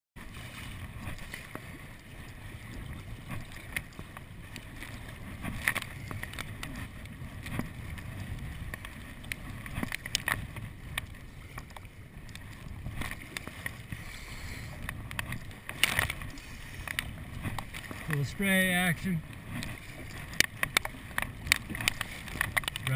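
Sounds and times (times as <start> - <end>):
wind rumble on microphone: 0.2 - 18.4
kayak paddle splashing: 0.2 - 22.9
waves slapping against hull: 0.2 - 22.9.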